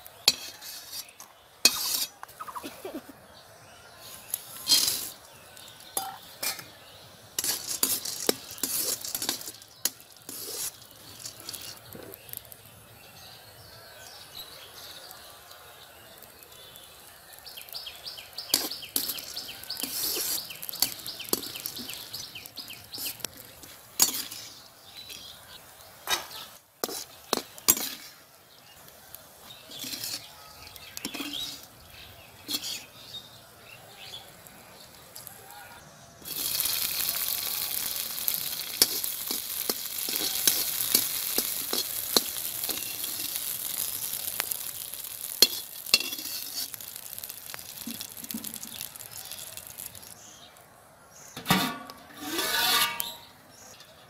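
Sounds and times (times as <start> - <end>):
metal spatula scraping a pan: 0.2 - 2.2, 4.1 - 5.2, 6.0 - 6.8, 7.4 - 12.2, 18.5 - 25.4, 26.1 - 28.2, 29.5 - 31.7, 32.4 - 33.2, 36.2 - 47.3, 51.4 - 53.9
peanuts rattling: 7.3 - 12.7, 14.6 - 25.4, 36.2 - 50.6.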